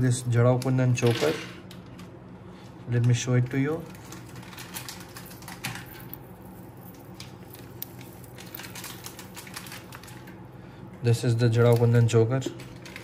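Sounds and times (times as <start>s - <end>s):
jewellery clicking and rustling: 3.9s - 10.4s.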